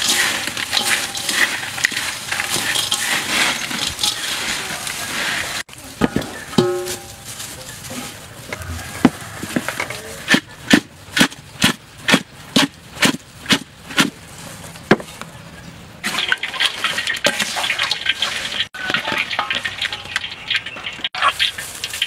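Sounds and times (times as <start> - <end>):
crackling in hot frying oil: 0.0 - 9.7, 16.0 - 22.0.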